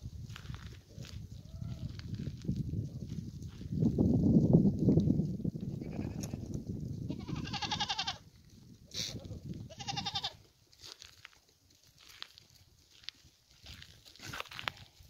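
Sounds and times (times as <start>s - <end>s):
goats bleating: 5.8s - 6.4s, 7.1s - 8.2s, 9.7s - 10.4s.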